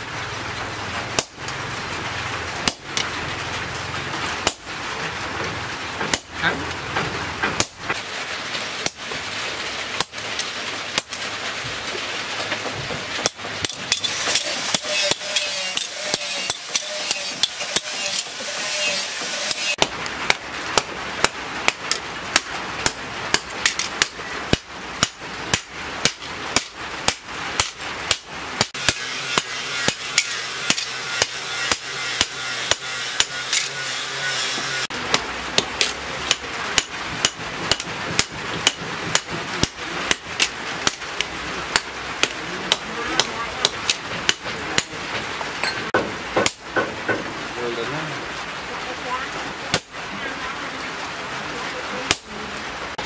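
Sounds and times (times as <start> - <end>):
hammer striking steel on anvil: 13.2 - 20.9, 21.7 - 41.0, 41.7 - 45.0, 45.6 - 47.2, 49.7 - 50.0.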